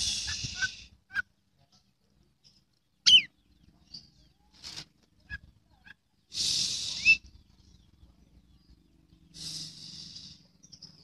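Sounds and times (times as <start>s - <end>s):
bird singing whistles: 3.0s - 3.3s, 6.8s - 7.3s.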